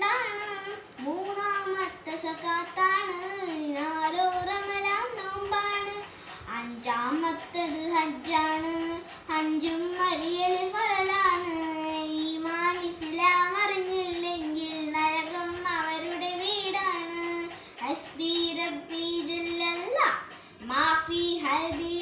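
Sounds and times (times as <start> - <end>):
girl singing unaccompanied: 0.0 - 22.0.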